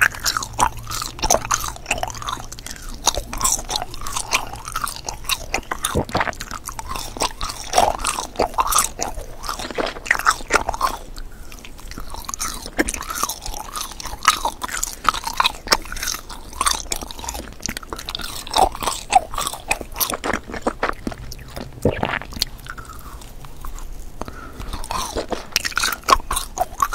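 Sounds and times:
biting into candy: 0.0 - 26.9
chewing gummy candy: 0.0 - 26.9.

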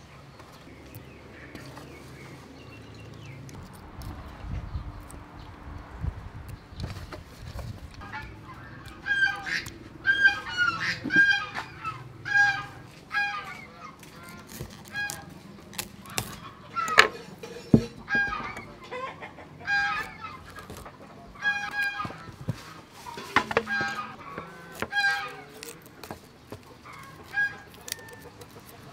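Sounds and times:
chickens clucking: 0.0 - 28.9
cauliflower snapping by hand: 13.6 - 18.6, 21.6 - 28.9.

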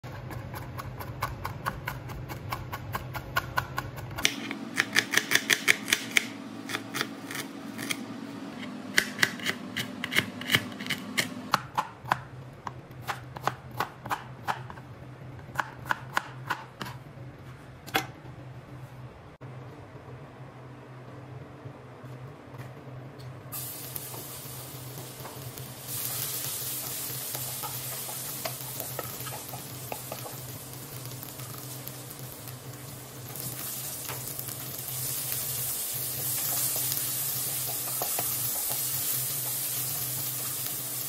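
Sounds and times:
knife chopping on plastic board: 0.1 - 8.0, 8.9 - 14.8.

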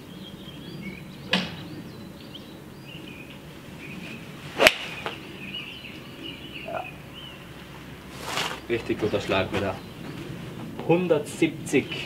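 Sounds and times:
faint bird chirps: 0.0 - 7.6
golf club swish: 4.1 - 5.2, 8.1 - 8.7
golf club striking ball: 4.6 - 5.2.

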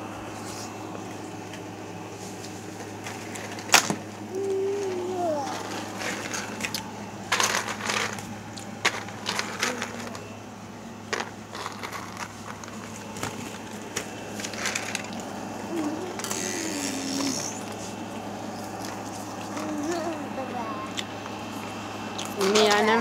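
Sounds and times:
low hum: 0.0 - 23.0
baby cooing: 4.3 - 5.9, 15.6 - 17.8, 19.5 - 21.0
plastic balls knocking together: 8.8 - 10.2.

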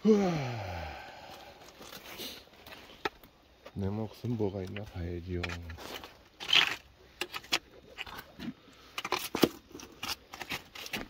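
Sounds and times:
rocks clattering and knocking: 1.4 - 11.0
rock scraping rasp: 5.3 - 11.0.

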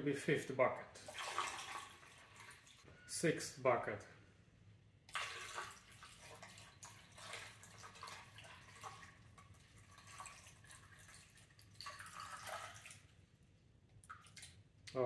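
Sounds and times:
water trickling through funnel: 1.0 - 2.9, 5.1 - 13.2.

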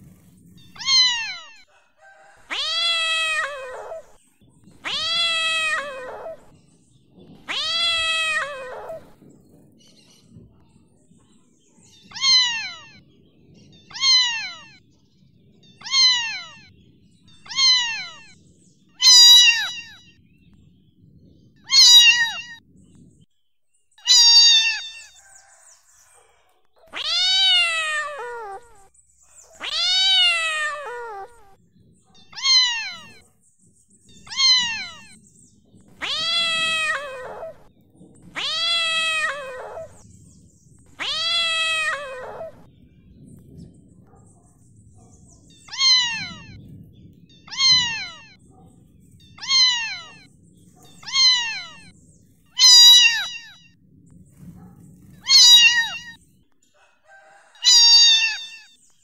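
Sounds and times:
cat meowing: 0.6 - 1.7, 2.4 - 4.2, 4.8 - 6.6, 7.4 - 9.2, 12.0 - 13.0, 13.8 - 14.8, 15.6 - 16.7, 17.3 - 18.4, 19.0 - 20.2, 21.7 - 22.6, 24.0 - 25.2, 26.8 - 33.2, 34.1 - 35.2, 35.9 - 40.0, 40.9 - 42.7, 45.5 - 46.6, 47.3 - 48.5, 49.2 - 52.0, 52.6 - 53.8, 55.0 - 56.2, 57.6 - 58.8.

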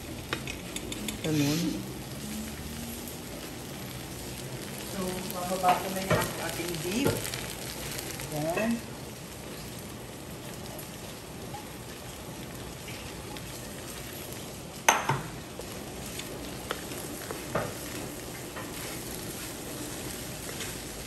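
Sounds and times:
fried rice sizzling in a wok: 0.0 - 21.0
knock on the pan: 14.9 - 15.3.

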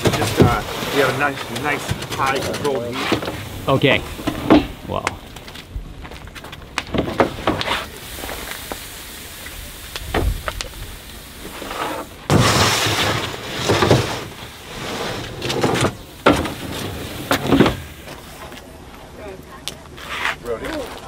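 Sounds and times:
metal trays scraping and knocking: 0.0 - 3.4, 11.7 - 17.9
steam rushing: 0.0 - 5.1, 7.2 - 18.6.

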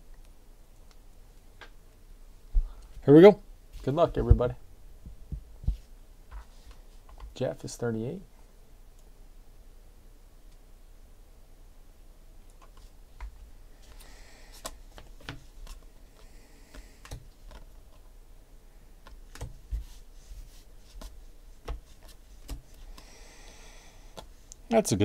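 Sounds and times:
trading cards clicking and snapping: 16.7 - 17.7, 19.0 - 19.6.

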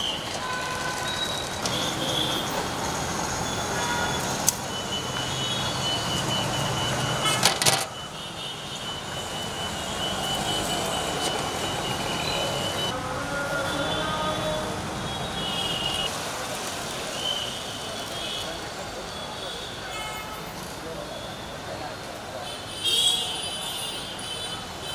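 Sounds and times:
street traffic: 0.0 - 24.9.

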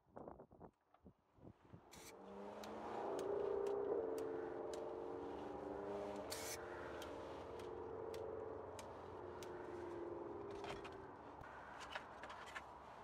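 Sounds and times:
faint sharp clicks: 1.9 - 4.9, 6.2 - 9.6
car engine running: 2.3 - 11.4.

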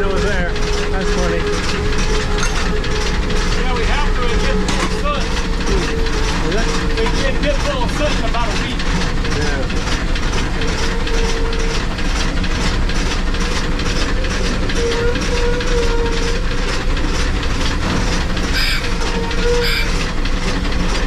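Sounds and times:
steam locomotive wheels clattering: 0.0 - 21.0
wheels squealing: 0.0 - 21.0.

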